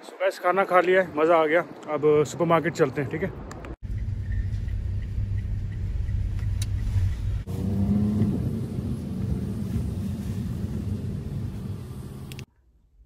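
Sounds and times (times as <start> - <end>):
car cabin engine rumble: 3.8 - 12.5.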